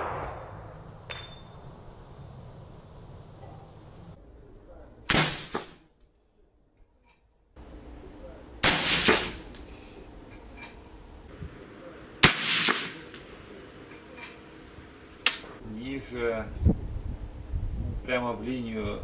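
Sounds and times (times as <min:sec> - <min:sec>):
weaker echo crack: 0:00.0 - 0:01.7, 0:11.4 - 0:13.6
suppressed rifle shots: 0:05.1 - 0:05.8, 0:08.6 - 0:09.6, 0:12.2 - 0:13.6.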